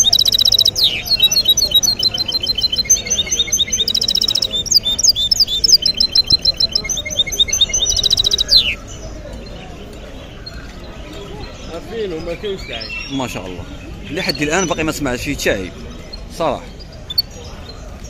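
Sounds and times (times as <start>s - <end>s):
finch singing trills and chirps: 0.0s - 18.0s.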